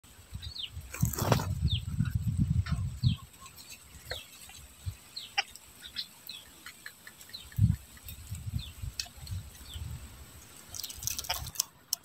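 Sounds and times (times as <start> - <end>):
myna bird calls: 2.6 - 10.0.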